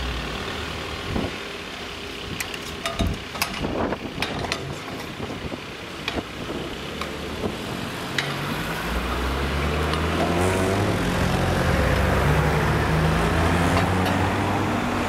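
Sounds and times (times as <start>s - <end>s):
tyre noise on road: 0.0s - 15.0s
car engine accelerating: 6.6s - 15.0s.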